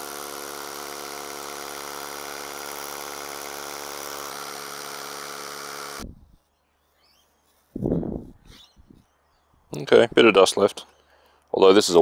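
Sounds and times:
rotary hammer drilling concrete: 0.0s - 6.0s.

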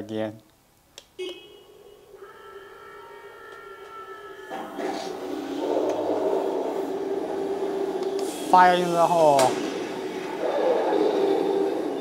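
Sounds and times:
electronic tones: 1.2s - 8.6s.

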